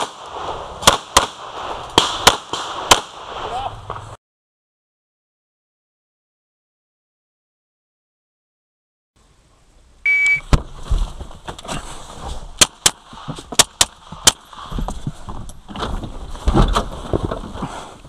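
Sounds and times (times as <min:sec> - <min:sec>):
pistol shots: 0:00.0 - 0:03.5
shot timer beep: 0:10.1 - 0:10.4.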